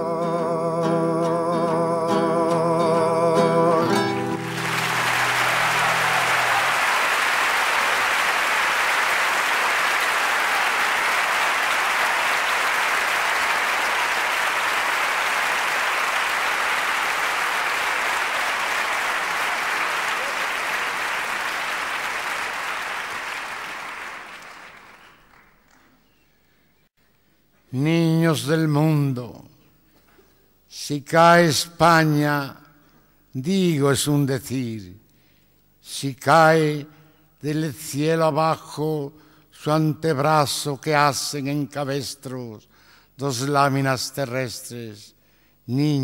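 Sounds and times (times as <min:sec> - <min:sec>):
audience applauding: 0:03.9 - 0:26.2.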